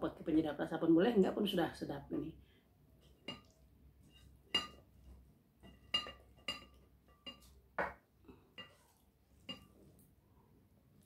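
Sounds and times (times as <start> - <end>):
glass plate clinking: 3.2 - 4.9, 5.6 - 9.8.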